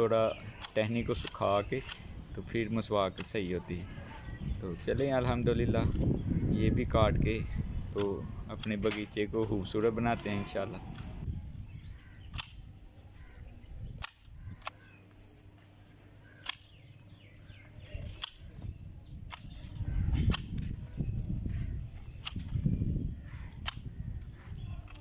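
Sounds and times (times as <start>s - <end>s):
branches rustling: 12.0s - 25.0s
loppers snapping through branches: 16.4s - 16.8s, 22.2s - 22.7s.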